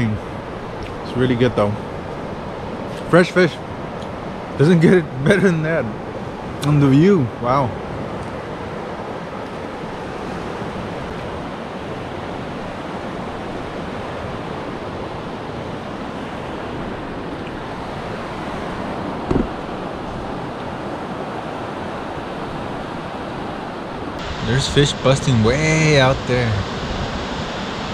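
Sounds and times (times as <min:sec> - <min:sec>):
surf waves washing on beach: 0:00.0 - 0:27.9
wind: 0:00.0 - 0:27.9
low thump: 0:19.3 - 0:19.8.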